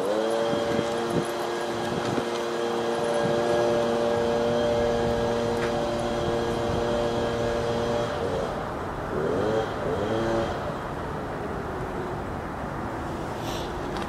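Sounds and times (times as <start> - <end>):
motor humming: 0.0 - 10.7
road traffic: 0.0 - 14.0.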